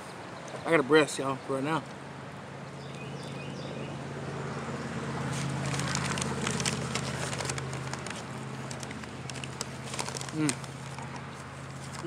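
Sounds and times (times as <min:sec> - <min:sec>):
highway traffic hum: 0:00.0 - 0:12.0
vehicle passing: 0:01.7 - 0:12.0
fried chicken crackling: 0:05.1 - 0:12.0
paper wrapper rustling: 0:05.3 - 0:12.0.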